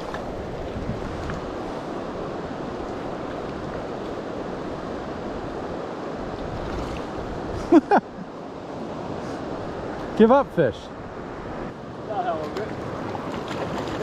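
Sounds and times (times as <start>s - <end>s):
wind on microphone: 0.0s - 7.8s
river current rushing: 0.0s - 14.0s.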